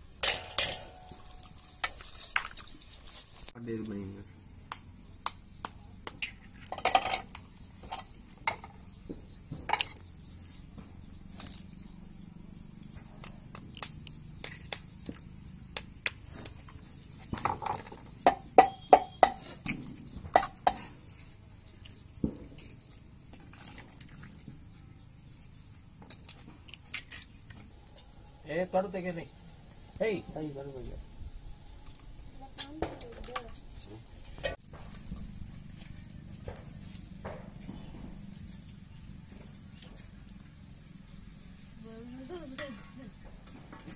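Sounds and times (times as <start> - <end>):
eggshells cracking on metal plate: 0.2 - 3.1, 4.7 - 8.8.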